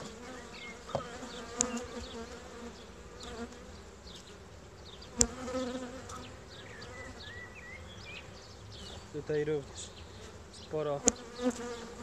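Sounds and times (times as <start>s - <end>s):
honeybees buzzing: 0.0s - 12.0s
knock on hive: 0.9s - 1.8s.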